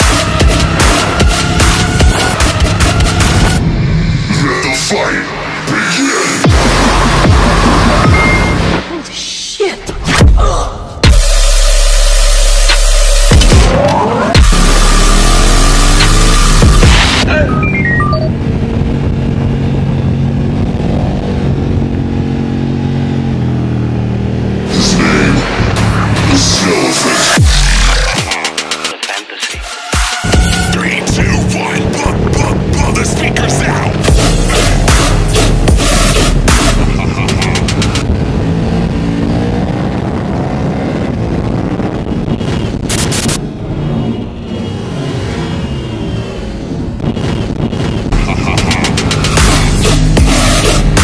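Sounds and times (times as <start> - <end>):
motorcycle engine while riding: 0.0 - 3.6, 18.3 - 26.6, 30.4 - 51.0.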